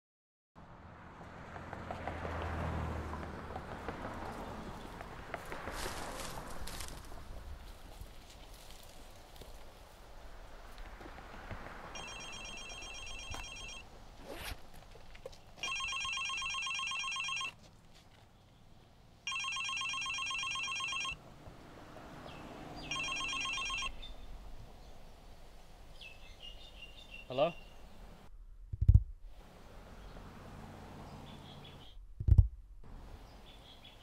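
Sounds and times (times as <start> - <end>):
warbling phone ringtone: 12.0 - 13.8, 15.6 - 17.5, 19.3 - 21.2, 22.9 - 24.0.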